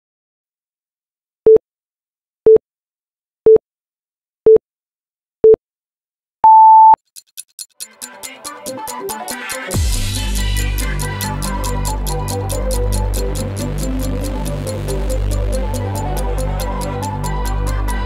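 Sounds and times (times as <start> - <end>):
countdown beeps: 6.4 - 7.0
sharp ticks: 7.0 - 18.0
electronic music: 7.5 - 18.0.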